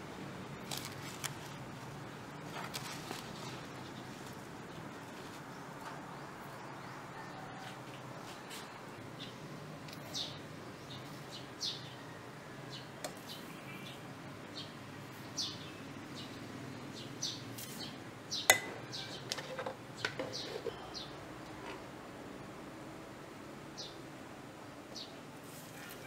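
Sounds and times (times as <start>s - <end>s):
steady low hiss: 0.0s - 19.0s, 19.7s - 26.0s
birds chirping: 2.0s - 21.6s.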